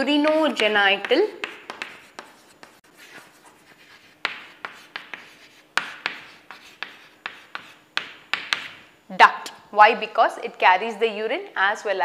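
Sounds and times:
chalk writing on blackboard: 0:00.3 - 0:08.8.

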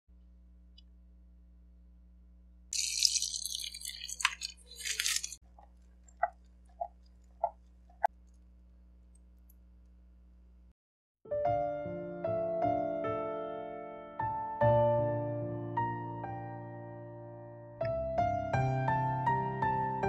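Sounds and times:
liquid pouring through strainer: 0:02.8 - 0:08.1.

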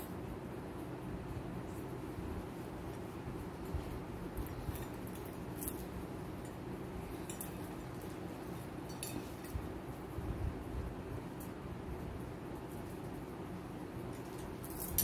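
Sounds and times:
steady low hum: 0:00.0 - 0:15.0
metal jewellery clinking: 0:14.2 - 0:15.0.

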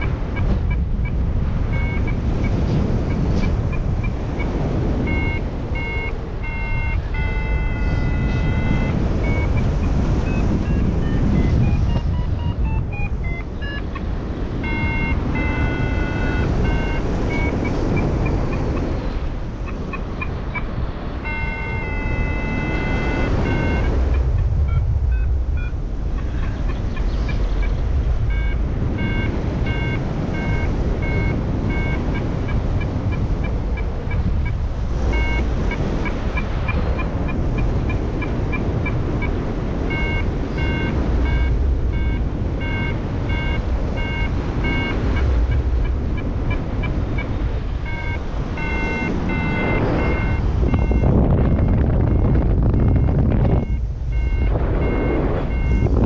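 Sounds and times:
variometer beeping: 0:00.0 - 0:56.0
wind rushing over microphone: 0:00.0 - 0:56.0.

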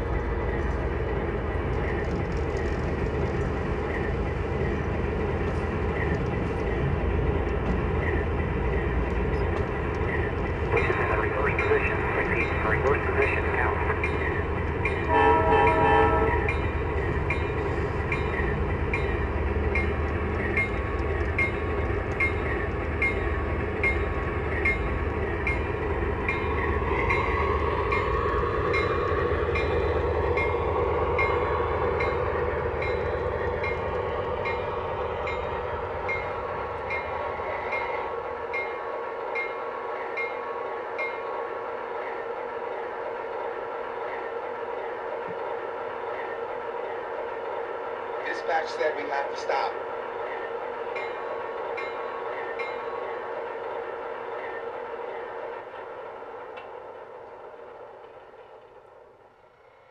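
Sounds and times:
model locomotive horn blast: 0:15.1 - 0:16.5.

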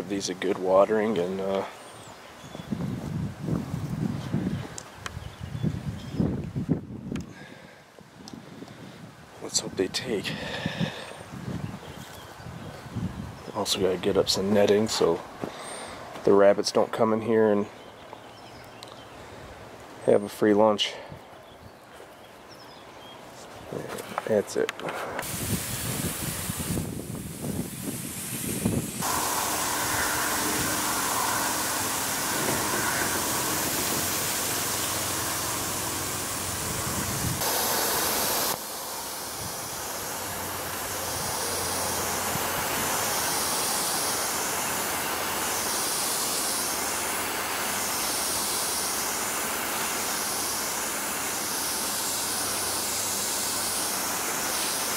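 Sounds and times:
sprinkler spray hissing: 0:25.2 - 0:54.9.

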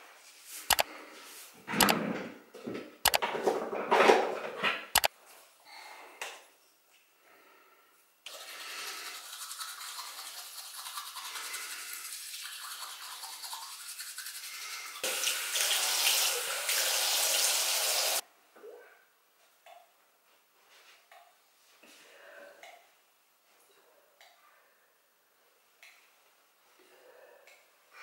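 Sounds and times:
electric toothbrush buzzing: 0:14.8 - 0:18.2.

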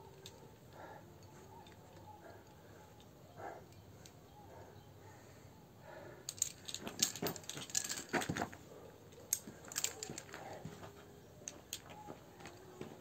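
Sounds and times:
climbing hardware clinking: 0:06.2 - 0:13.0.

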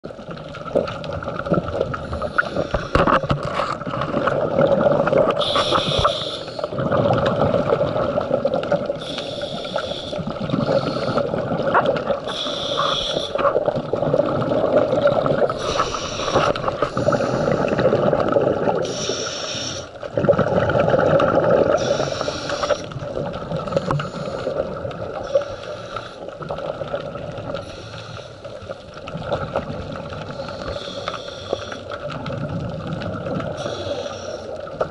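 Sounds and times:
bubbling exhalations underwater: 0:00.7 - 0:09.1, 0:10.2 - 0:19.2, 0:20.1 - 0:25.3
regulator hiss on inhale: 0:02.0 - 0:03.3, 0:05.4 - 0:06.7, 0:09.0 - 0:11.4, 0:12.3 - 0:13.5, 0:15.5 - 0:17.8, 0:18.8 - 0:20.0, 0:21.7 - 0:23.0, 0:23.6 - 0:26.4, 0:27.6 - 0:28.8, 0:30.2 - 0:32.0, 0:33.5 - 0:34.8.

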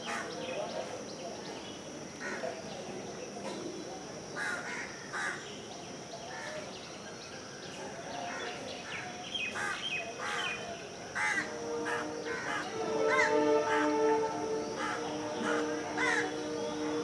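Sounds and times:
crows cawing: 0:11.2 - 0:13.8, 0:14.8 - 0:16.4
steady low tone: 0:11.3 - 0:17.0.

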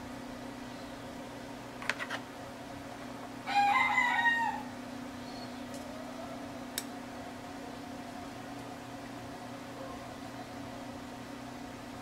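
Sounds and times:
rooster crowing: 0:03.4 - 0:04.8.

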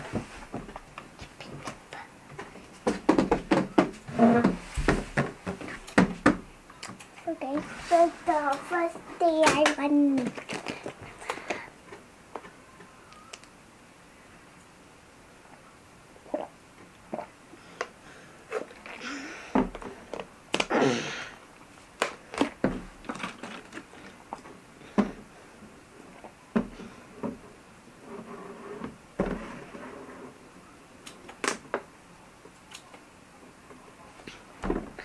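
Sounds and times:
plastic bottle clicks and crinkles: 0:09.5 - 0:11.6
plastic bottle rustling: 0:10.0 - 0:11.6, 0:22.0 - 0:24.4.

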